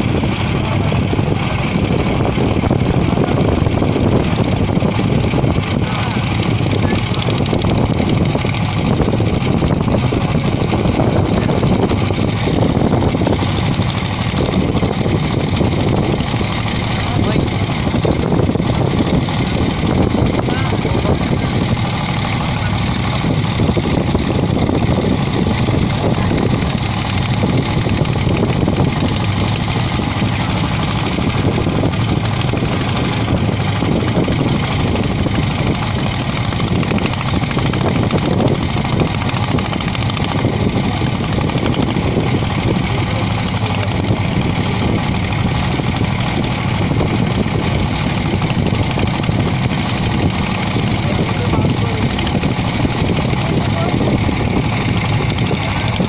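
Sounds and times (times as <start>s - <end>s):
motorboat engine droning: 0.0s - 56.0s.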